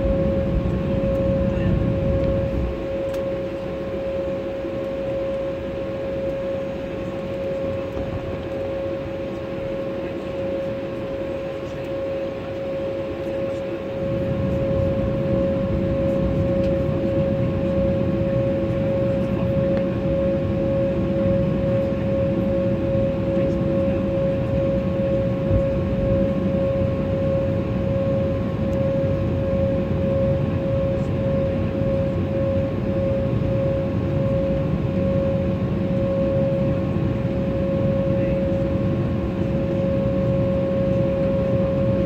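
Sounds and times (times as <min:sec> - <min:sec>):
low cabin rumble: 0:00.0 - 0:10.4
airliner engine whine: 0:00.0 - 0:42.0.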